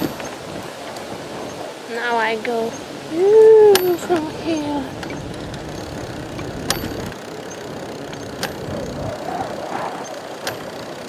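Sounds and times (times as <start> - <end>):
wind and tyre rumble: 0.0 - 11.0
sharp clicks: 5.0 - 9.0, 10.0 - 11.0.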